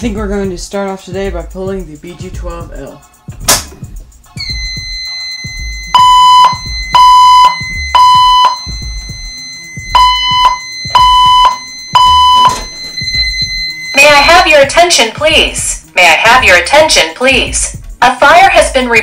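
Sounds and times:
fire alarm beeps: 4.4 - 14.7.

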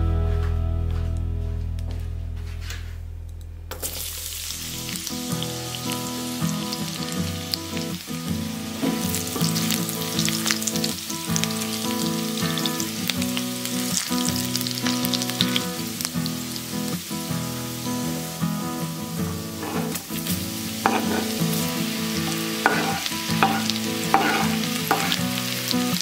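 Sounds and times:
garlic sizzling in hot oil: 3.8 - 26.0
spatula scraping a pan: 19.6 - 25.5.

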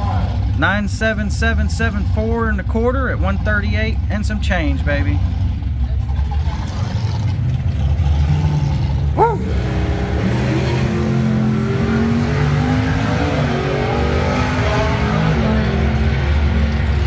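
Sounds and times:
car engine accelerating: 4.8 - 17.0.

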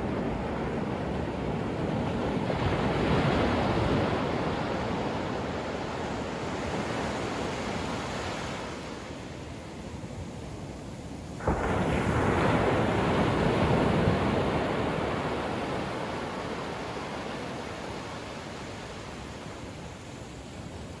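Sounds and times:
wash rushing up sand: 10.8 - 21.0
ocean wave breaking: 11.4 - 21.0.

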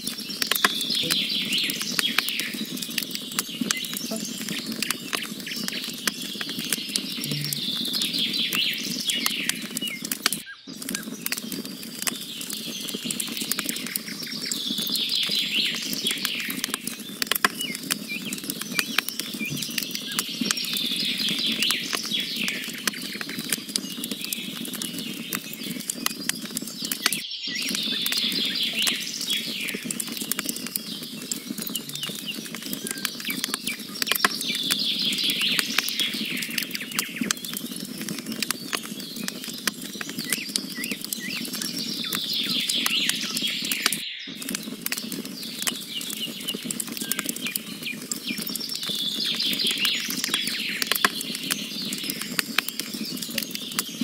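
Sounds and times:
wood fire crackling and popping: 0.0 - 54.0
songbird trilling: 0.9 - 1.7, 3.6 - 4.7, 7.2 - 8.4, 31.6 - 33.0.

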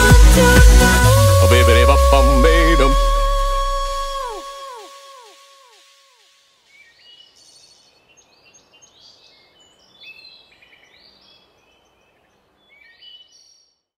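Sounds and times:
birds chirping and trilling: 6.6 - 13.8.

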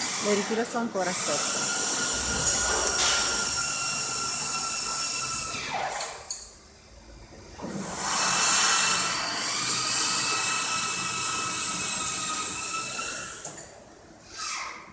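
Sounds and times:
hydraulic system hissing whine: 0.0 - 5.8.

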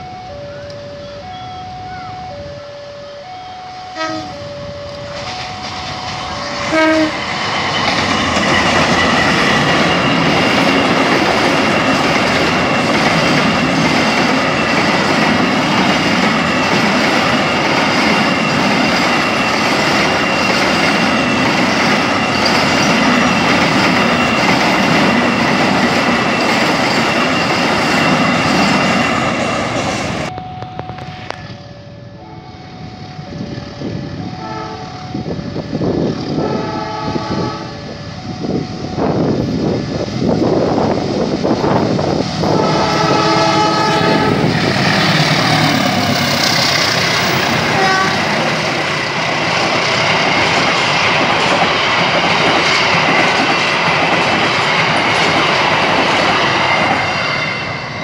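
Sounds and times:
locomotive horn blasts: 0.0 - 7.2, 30.6 - 35.5, 36.3 - 39.2, 42.4 - 44.6, 47.4 - 48.4
high-pitched ringing: 0.0 - 36.5, 37.1 - 39.8
level-crossing two-tone alarm: 0.0 - 39.8
freight train wheels on rails: 0.0 - 58.0.

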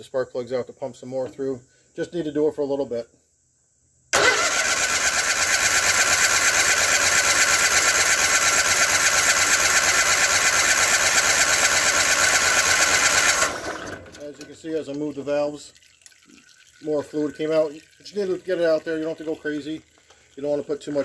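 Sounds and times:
engine cranked by electric starter: 4.2 - 14.6.

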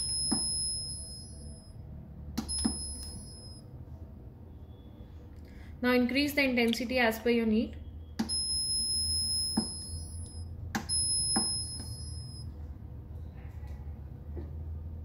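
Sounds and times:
long high-pitched electronic beep: 0.0 - 1.8, 2.4 - 3.6, 8.2 - 12.5
low steady hum: 0.0 - 15.0
button clicks: 2.4 - 3.3.

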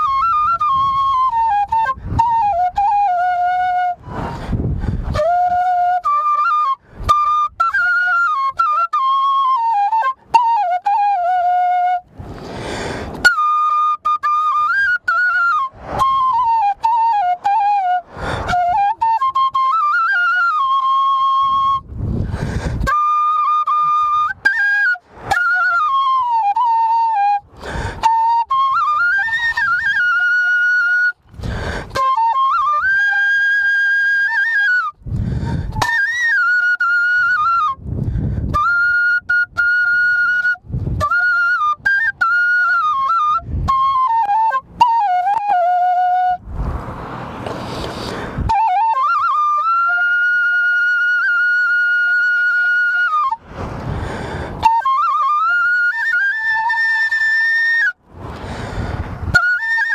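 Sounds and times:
bamboo flute melody: 0.0 - 59.9
breath noises: 4.0 - 5.1, 12.2 - 13.2, 18.1 - 18.5, 22.0 - 22.9, 27.5 - 28.0, 31.3 - 32.0, 35.0 - 35.8, 46.6 - 48.5, 53.6 - 54.6, 58.2 - 59.2.

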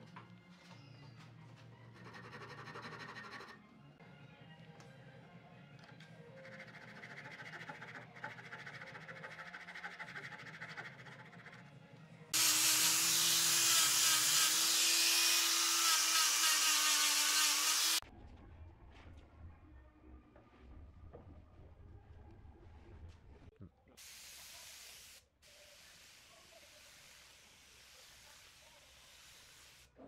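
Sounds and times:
angle grinder sanding wood: 12.4 - 18.0.

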